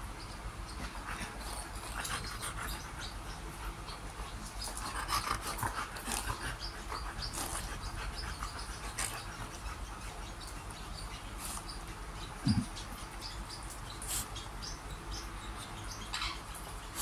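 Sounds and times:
dogs panting: 0:00.6 - 0:14.8.

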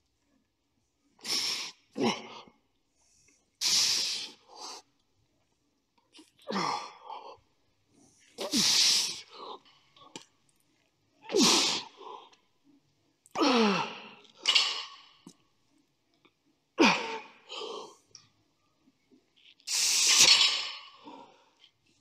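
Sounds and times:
man exhaling and grunting: 0:13.4 - 0:14.1.

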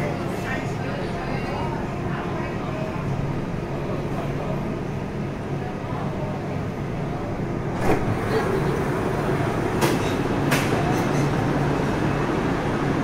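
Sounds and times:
steady equipment hum: 0:00.0 - 0:13.0
train doors sliding open: 0:07.7 - 0:11.4.

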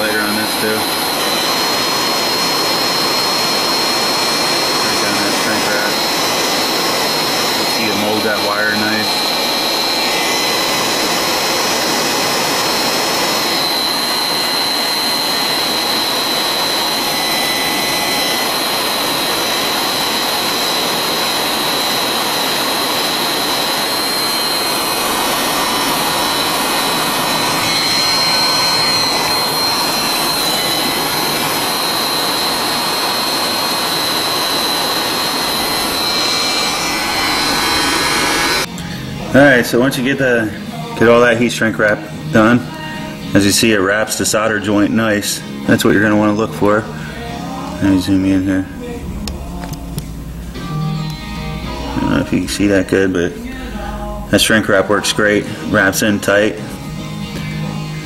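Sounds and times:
heat gun fan whistling: 0:00.0 - 0:38.9.

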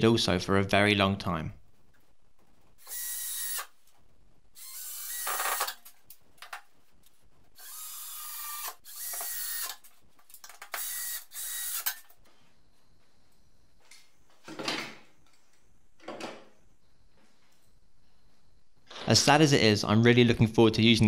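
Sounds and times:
cordless drill driving screws: 0:02.8 - 0:03.7, 0:04.6 - 0:05.8, 0:07.6 - 0:09.8, 0:10.7 - 0:12.1.

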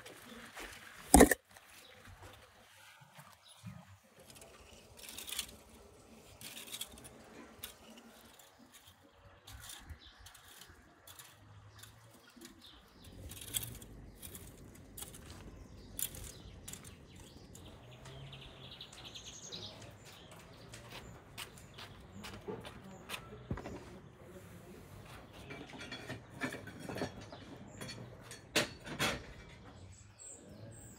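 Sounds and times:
birds chirping: 0:00.2 - 0:28.4, 0:29.4 - 0:30.9
metal rake scratching soil: 0:04.0 - 0:17.7.

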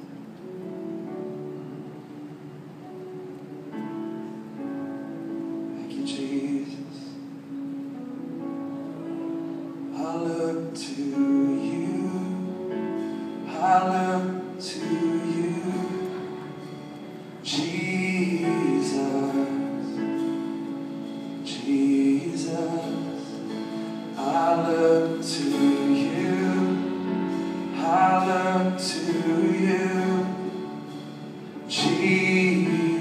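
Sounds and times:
held chords: 0:00.0 - 0:33.0
person singing worship song: 0:08.3 - 0:33.0.

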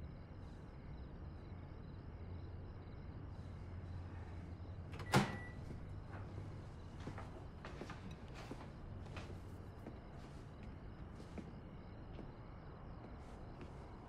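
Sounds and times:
low room hum: 0:00.0 - 0:14.0.

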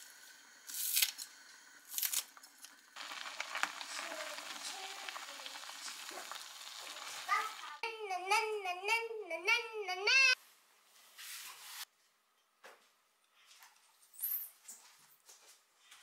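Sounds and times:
soup boiling and bubbling: 0:00.0 - 0:07.8
high wavering vocal sound: 0:07.8 - 0:10.4.

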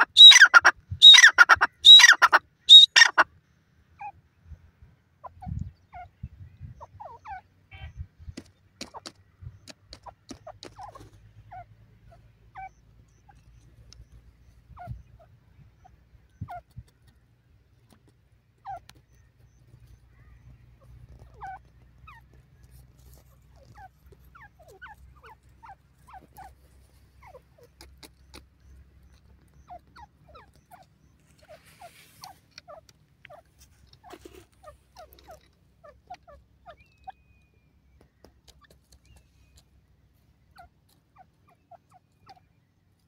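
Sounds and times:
bird giving squeaky notes: 0:00.0 - 0:03.1.

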